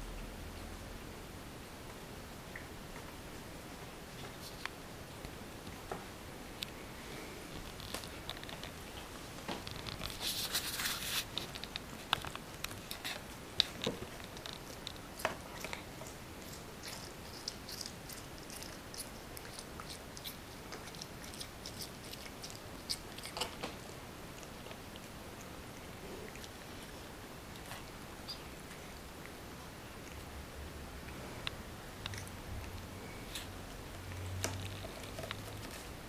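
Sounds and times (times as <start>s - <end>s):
cat chewing wet food: 11.3s - 36.0s.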